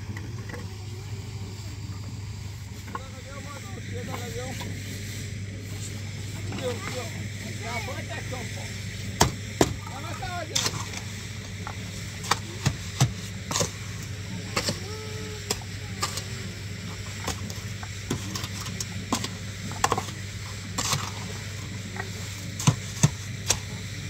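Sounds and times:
faint voices: 0.0 - 22.6
shovel scraping mortar in wheelbarrow: 9.6 - 14.9, 15.5 - 23.7.

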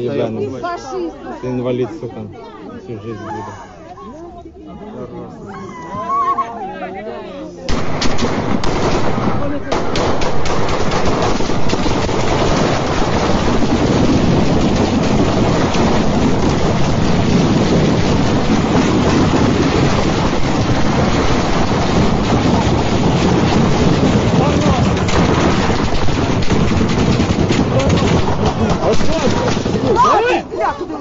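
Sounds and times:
wind buffeting microphone: 10.0 - 30.0.

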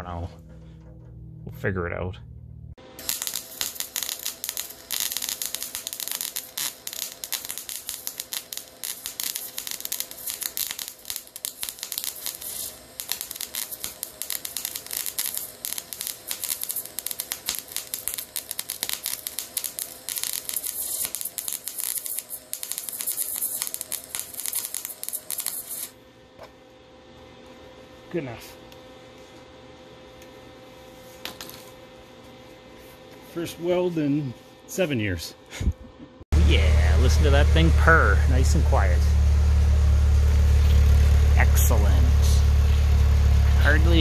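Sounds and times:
welder arc crackling: 2.8 - 26.0, 36.4 - 44.0.

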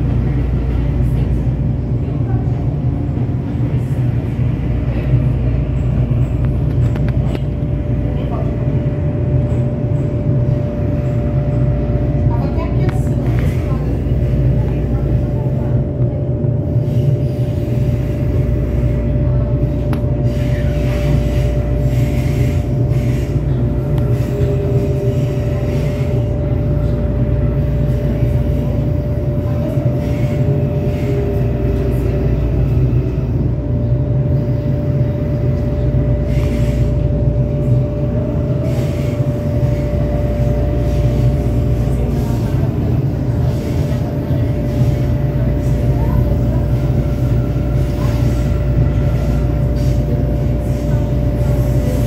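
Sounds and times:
train rumble: 0.0 - 52.0.

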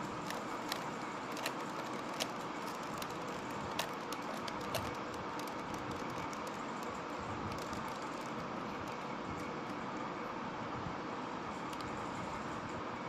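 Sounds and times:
puzzle cube twisting clicks: 0.2 - 9.0.

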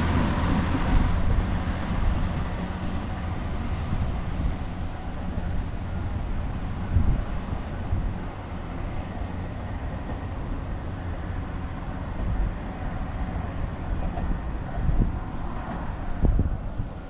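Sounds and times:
railcar engine rumbling: 0.0 - 17.0
wind buffeting microphone: 0.0 - 17.0.

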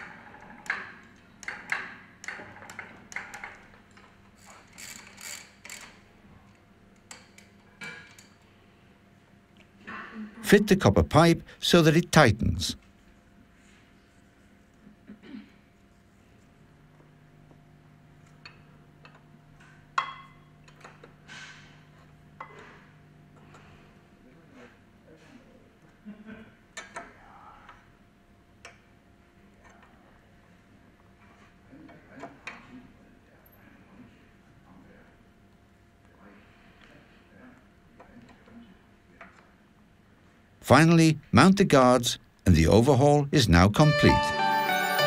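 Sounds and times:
faint steady hum: 5.7 - 24.5.

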